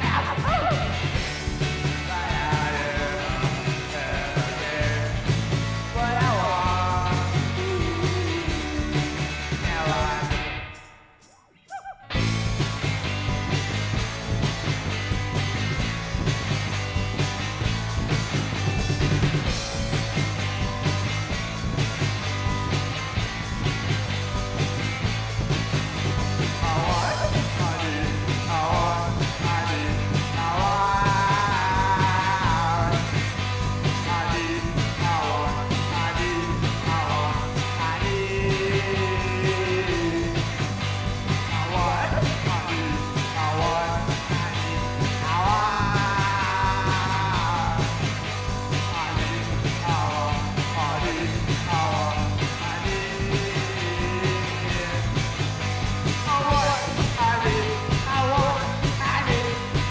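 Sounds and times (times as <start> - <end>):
person singing lead vocal: 0.0 - 10.6, 26.4 - 40.8, 41.4 - 55.3, 56.2 - 59.9
electric bass: 0.0 - 10.8, 12.1 - 59.9
drum kit: 0.0 - 10.9, 12.1 - 59.9
electric guitar: 0.0 - 59.9.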